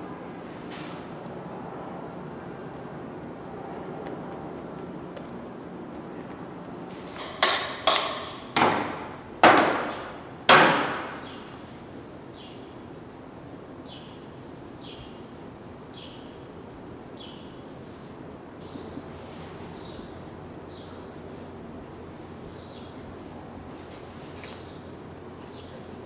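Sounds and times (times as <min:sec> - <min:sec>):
sharp knocks on hard object: 0:07.2 - 0:11.2.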